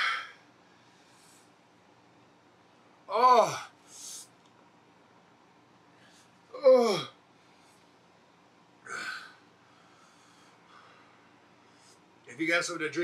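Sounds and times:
man exclaiming ooh: 0:03.1 - 0:03.7.

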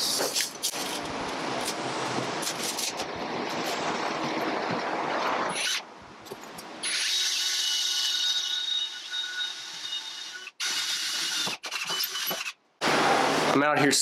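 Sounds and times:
cordless drill boring metal: 0:06.8 - 0:12.6.

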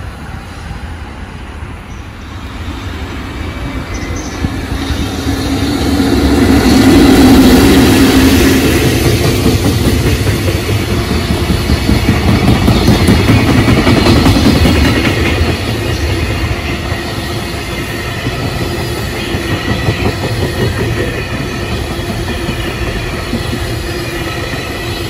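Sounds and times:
electric locomotive passing: 0:00.0 - 0:25.0.

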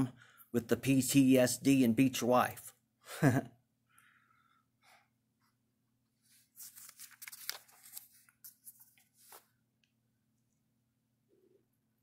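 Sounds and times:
paper page rustling and crackling: 0:06.3 - 0:09.6.

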